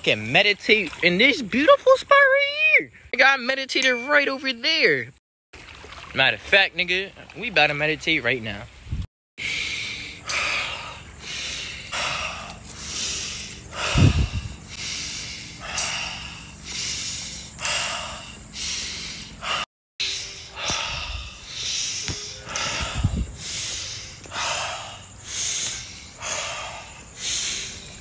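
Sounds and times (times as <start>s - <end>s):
person breathing deeply: 9.4s - 28.0s.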